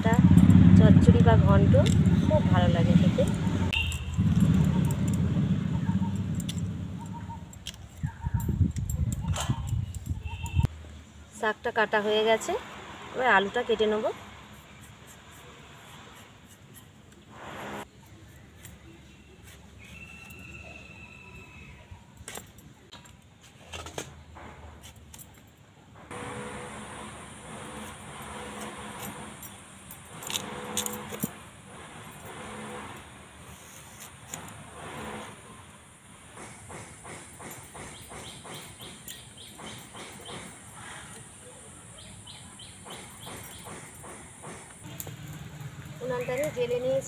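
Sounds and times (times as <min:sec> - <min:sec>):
bangles clinking: 0:01.5 - 0:10.6.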